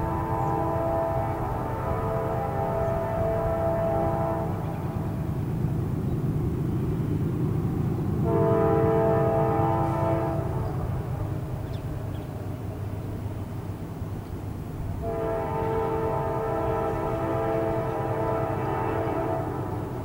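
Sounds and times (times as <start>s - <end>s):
locomotive air horn blasts: 0.0s - 4.7s, 8.2s - 10.8s, 15.0s - 20.0s
low train rumble: 0.0s - 20.0s.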